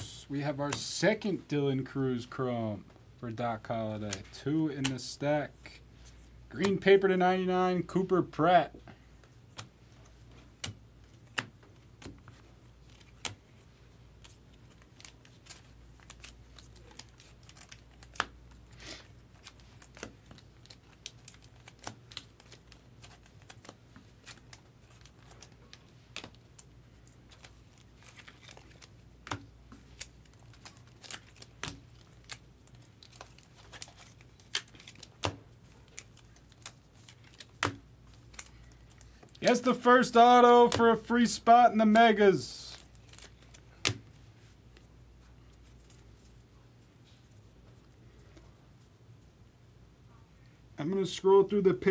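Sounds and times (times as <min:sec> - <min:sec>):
cards clicking and tapping: 0:04.1 - 0:05.0, 0:06.6 - 0:06.9, 0:09.2 - 0:13.4, 0:14.2 - 0:18.4, 0:19.4 - 0:39.9, 0:40.6 - 0:41.1.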